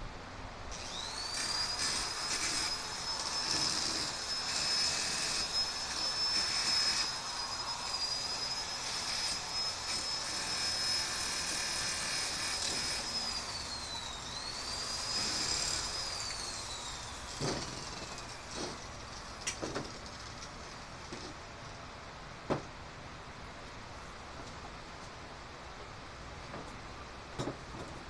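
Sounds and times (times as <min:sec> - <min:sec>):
drill winding down: 0:00.7 - 0:18.7
electric drill whining: 0:00.7 - 0:19.1.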